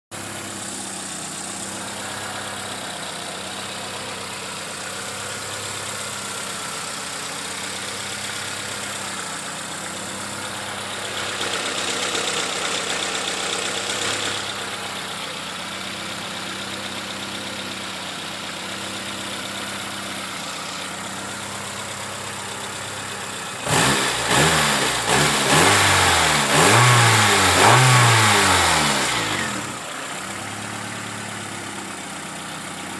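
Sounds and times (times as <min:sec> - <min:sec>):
car engine idling: 0:00.1 - 0:32.9
engine revving in quick blips: 0:23.6 - 0:29.7.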